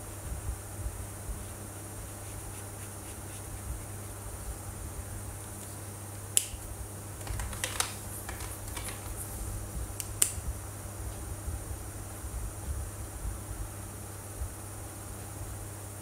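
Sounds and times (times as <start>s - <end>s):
low steady hum: 0.0s - 16.0s
marker caps clicking: 7.2s - 9.2s.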